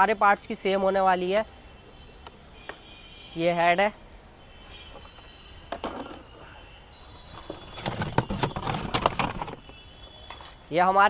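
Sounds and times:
cardboard rustling: 7.2 - 9.8
panels knocking and scraping: 7.4 - 9.7.

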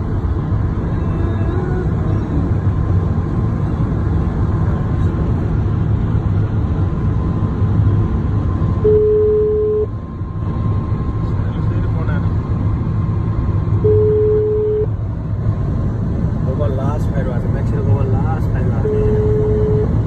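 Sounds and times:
car road and engine noise: 0.0 - 20.0
steady beep: 8.8 - 9.9, 13.8 - 14.9, 18.8 - 20.0.

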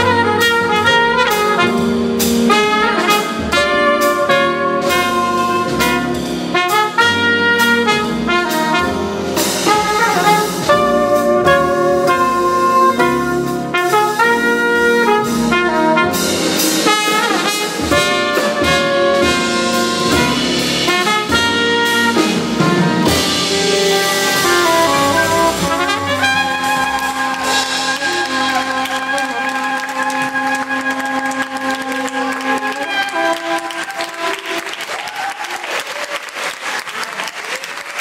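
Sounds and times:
soprano saxophone: 0.0 - 9.0, 9.6 - 34.8
drum kit with cymbals: 0.0 - 33.6
double bass: 0.0 - 34.6
trumpet: 0.0 - 36.1
piano: 0.0 - 38.0.

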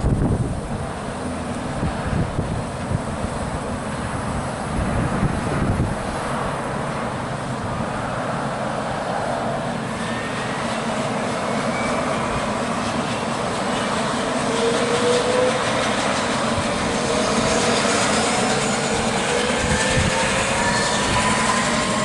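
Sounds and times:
helicopter turbine and rotor: 0.0 - 22.0
turbine whine rising: 0.0 - 22.0.

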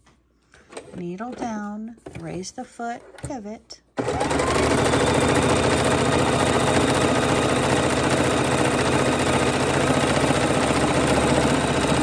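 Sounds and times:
sewing machine whirring: 4.0 - 12.0.

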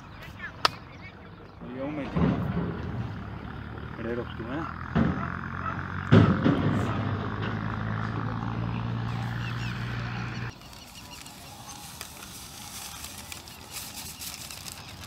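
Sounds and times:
salt pouring with hiss and ticking: 10.5 - 15.0.

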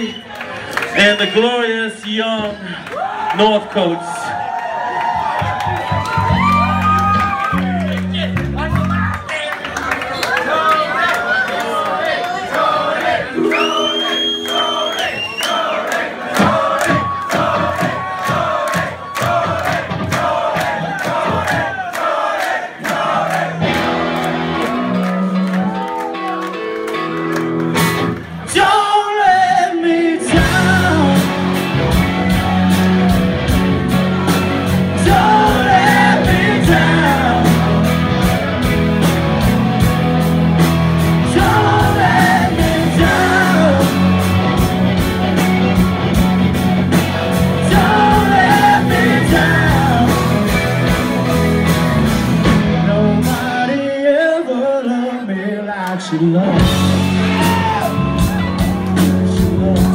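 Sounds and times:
sustained guitar notes: 13.4 - 15.4
live rock band playing: 13.4 - 15.6, 23.1 - 54.0, 56.2 - 59.9
person singing: 28.5 - 33.0, 34.8 - 38.0, 41.1 - 44.4, 47.5 - 50.6, 52.7 - 59.9.

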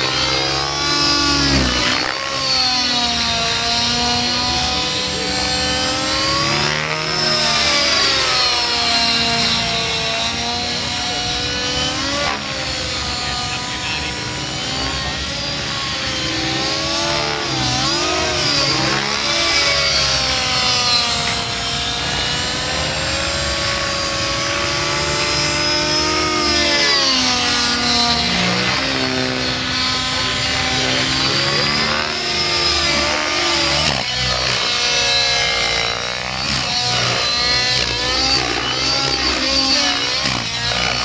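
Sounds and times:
model helicopter engine whine: 0.0 - 41.0.

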